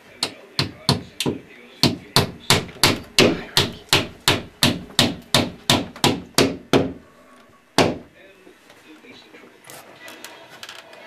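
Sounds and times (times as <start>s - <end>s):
hammer striking ceiling: 1.8s - 7.0s.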